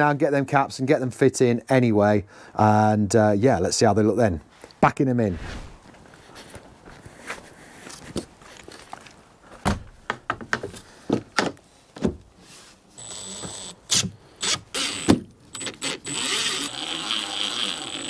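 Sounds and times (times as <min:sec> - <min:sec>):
cordless drill whining: 0:14.4 - 0:18.0.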